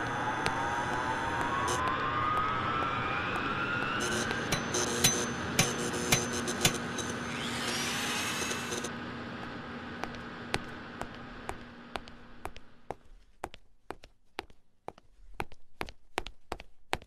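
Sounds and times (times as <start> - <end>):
rising whistle-like glide: 0.0 - 8.9
steady hum: 0.0 - 13.3.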